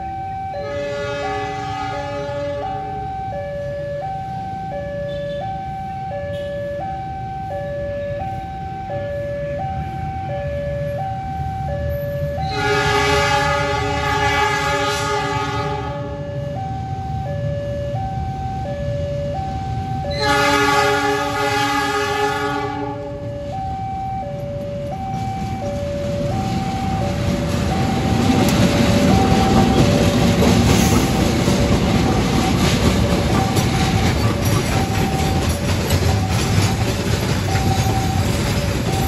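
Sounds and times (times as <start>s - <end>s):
two-note warning signal: 0.0s - 12.9s
train rumbling: 0.0s - 39.0s
locomotive horn blasts: 0.5s - 3.0s, 5.0s - 5.6s, 6.3s - 6.7s, 12.4s - 16.2s, 20.1s - 23.3s.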